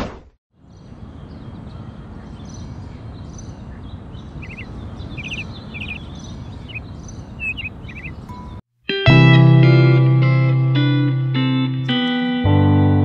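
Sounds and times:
small birds chirping: 0.6 - 8.6
faint high bird calls: 3.7 - 8.6.

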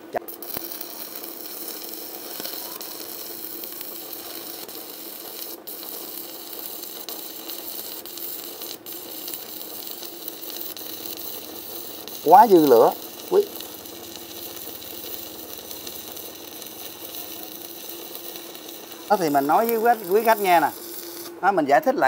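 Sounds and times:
welding arc crackling sizzle: 0.0 - 22.0.

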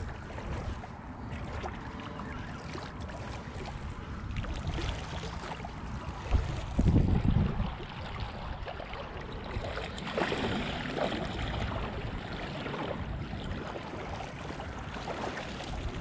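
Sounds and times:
shallow water sloshing: 0.0 - 16.0
water splashes: 0.0 - 16.0
wind noise on microphone: 3.2 - 8.8, 15.6 - 16.0.

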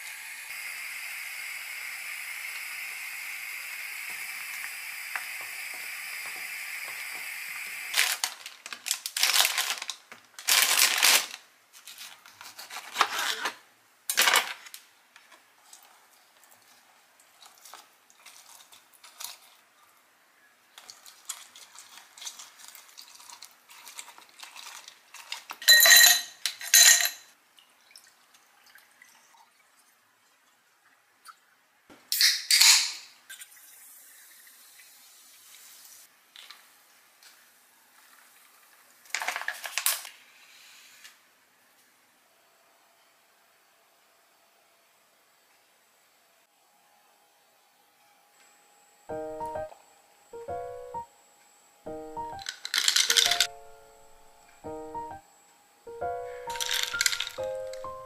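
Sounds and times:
kitchen clattering and scraping: 10.5 - 14.8, 20.8 - 27.3, 52.4 - 53.5, 56.5 - 57.4.

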